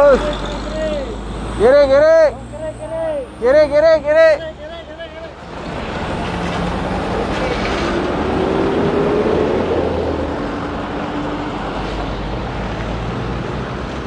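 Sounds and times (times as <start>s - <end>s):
vehicles passing on highway: 0.0s - 14.0s
engine revving up: 5.5s - 10.8s.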